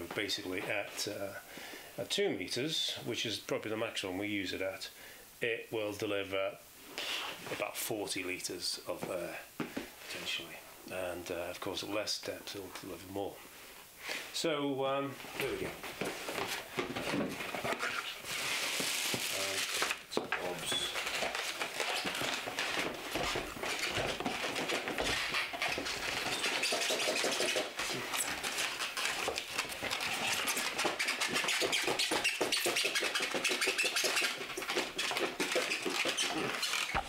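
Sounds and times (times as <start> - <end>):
packaging rustling and crinkling: 15.4 - 37.0.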